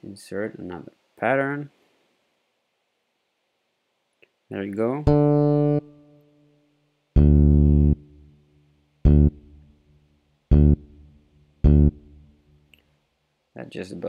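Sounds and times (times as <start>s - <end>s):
electric bass low notes: 5.0s - 5.9s, 7.2s - 8.3s, 9.0s - 9.7s, 10.5s - 12.4s.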